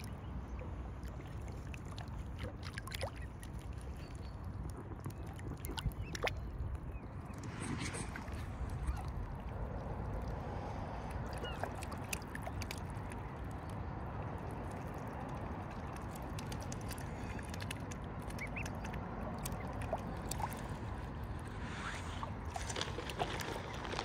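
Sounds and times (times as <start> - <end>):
low rushing background: 7.0 - 11.3
cygnets peeping: 18.2 - 19.8.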